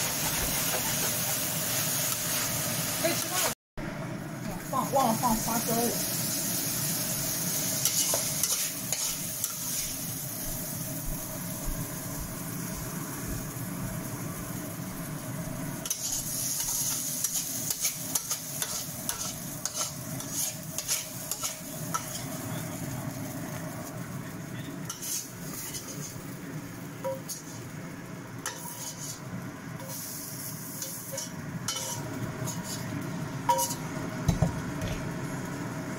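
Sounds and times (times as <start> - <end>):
potato sizzling in wok: 0.0 - 35.9
metal spatula scraping wok: 7.8 - 10.0, 15.8 - 22.4, 24.9 - 26.3, 27.0 - 27.7, 28.4 - 33.9.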